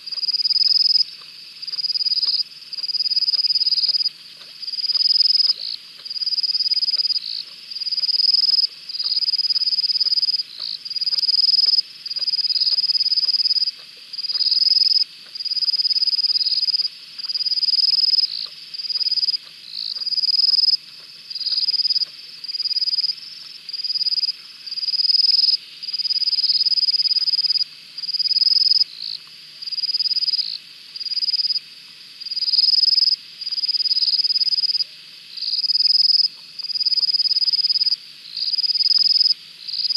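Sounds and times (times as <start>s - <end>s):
chorus of night calls: 0.0s - 39.9s
faint soft ticks: 0.1s - 24.5s, 36.1s - 38.0s.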